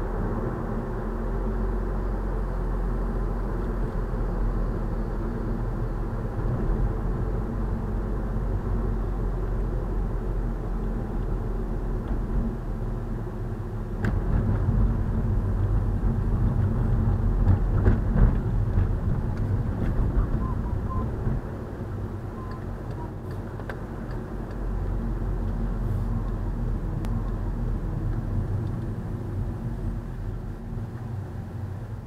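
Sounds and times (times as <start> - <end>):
car cabin engine and road rumble: 0.0 - 32.0
knocks and thumps: 17.4 - 20.4.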